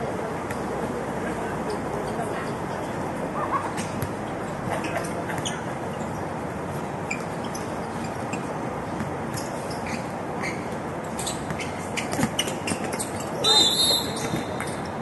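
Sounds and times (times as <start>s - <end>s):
outdoor basketball game noise: 0.0s - 15.0s.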